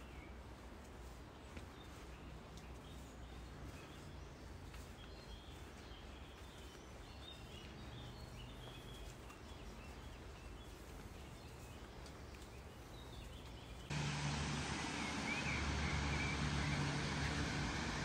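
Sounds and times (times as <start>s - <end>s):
waterfall rushing: 13.9s - 18.0s.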